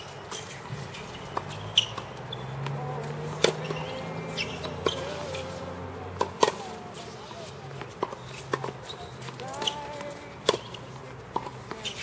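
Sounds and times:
tennis balls bouncing: 0.0 - 12.0
tennis balls struck with racket: 0.0 - 12.0.

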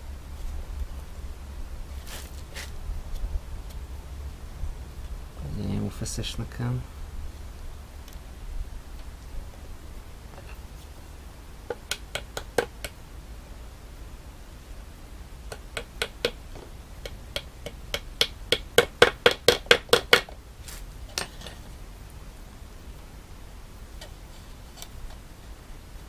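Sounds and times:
small hammer tapping staples: 11.7 - 13.0, 15.5 - 16.4, 17.0 - 20.3.

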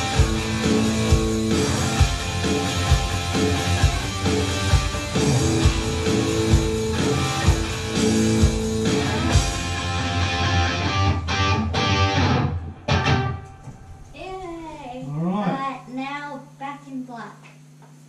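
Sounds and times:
electronic drums: 0.0 - 10.2
electric guitar rock riff: 0.0 - 14.2.

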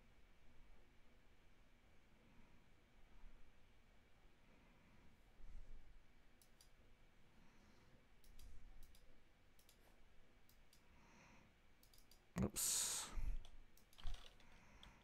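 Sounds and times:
low room hum: 0.0 - 15.0
faint mouse clicks: 6.4 - 6.8, 8.2 - 10.9, 11.8 - 12.3.

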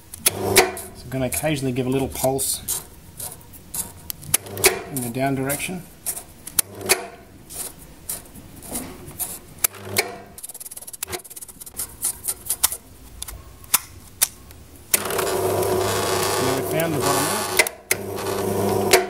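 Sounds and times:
motor humming: 14.9 - 19.0
sharp irregular clicks and taps: 17.5 - 18.0.

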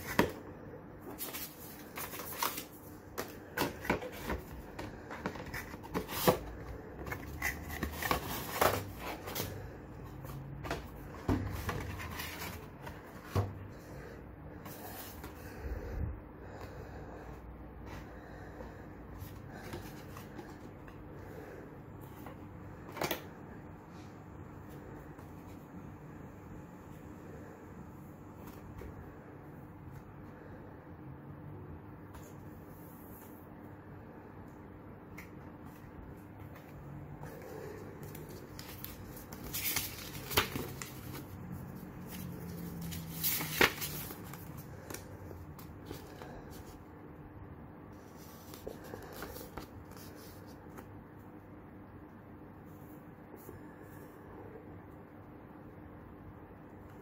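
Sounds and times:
packaging rustling: 38.1 - 45.0.

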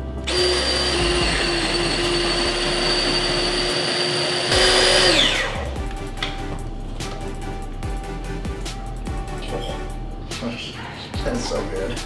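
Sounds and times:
faint background music: 0.0 - 12.0
food processor running: 0.2 - 5.8.

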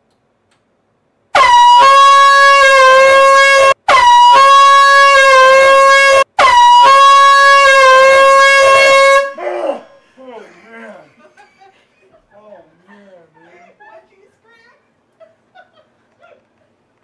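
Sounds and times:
air horn blasts: 1.3 - 9.5.

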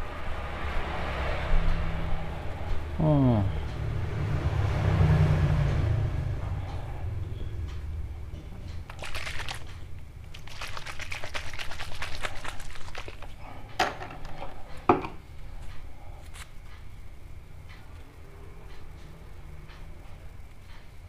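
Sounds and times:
fingers rustling hair: 10.3 - 13.3.

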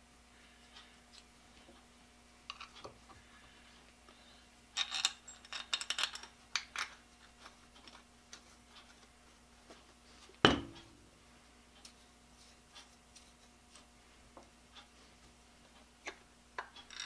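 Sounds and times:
steel parts clinking: 4.8 - 7.0.

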